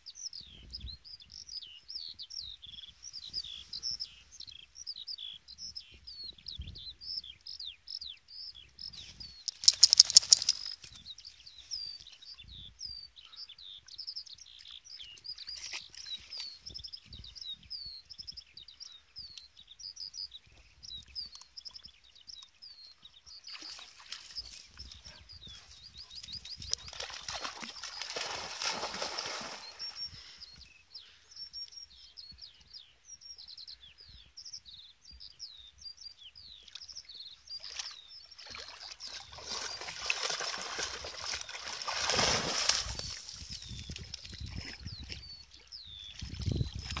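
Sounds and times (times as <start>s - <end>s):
birds chirping: 0.2s - 47.0s
dogs splashing through water: 9.5s - 10.8s, 26.2s - 30.0s, 37.6s - 45.2s.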